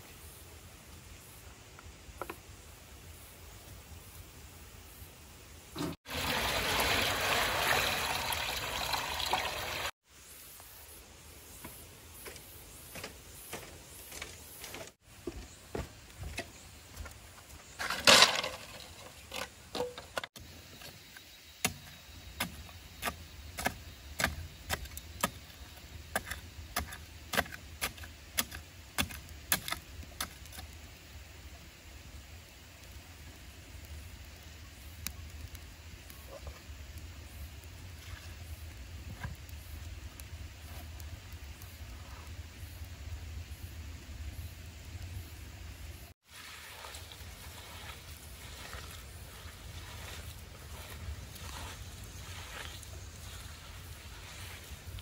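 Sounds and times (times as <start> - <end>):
water pouring: 5.8 - 10.0, 46.3 - 48.6.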